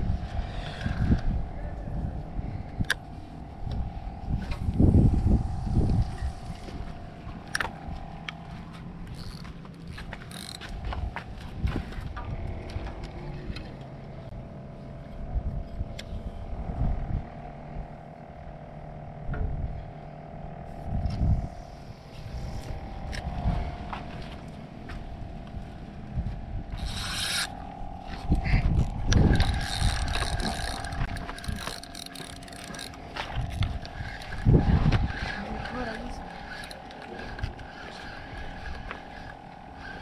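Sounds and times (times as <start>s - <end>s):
fishing reel cranking: 0.0s - 1.4s, 2.7s - 14.3s, 26.6s - 40.0s
engine drone: 0.0s - 40.0s
wind on microphone: 0.0s - 40.0s.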